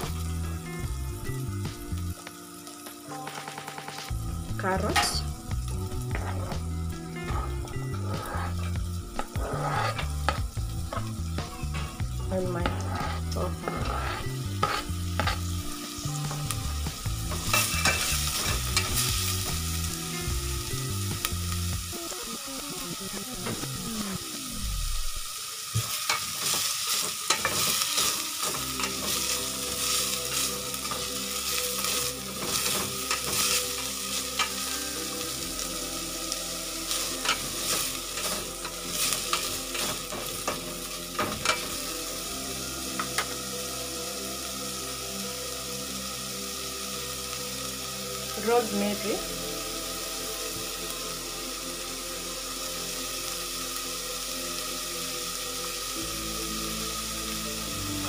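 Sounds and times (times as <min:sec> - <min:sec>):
vegetables sizzling in oil: 0:00.0 - 0:58.0
metal turner scraping pot: 0:07.3 - 0:10.4, 0:12.6 - 0:15.5, 0:17.3 - 0:19.0.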